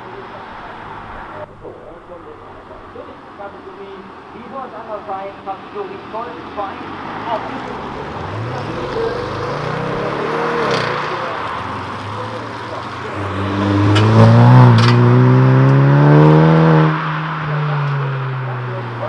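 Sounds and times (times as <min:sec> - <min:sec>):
car pulling away quietly: 0:06.0 - 0:19.0
car engine revving hard: 0:06.8 - 0:19.0.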